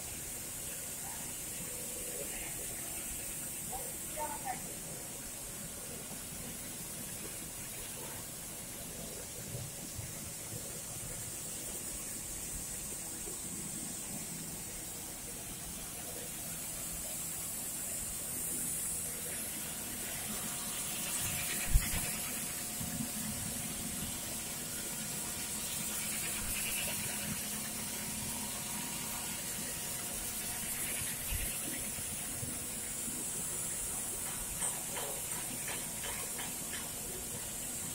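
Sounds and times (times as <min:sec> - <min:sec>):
knitting machines whirring: 0:19.4 - 0:32.4.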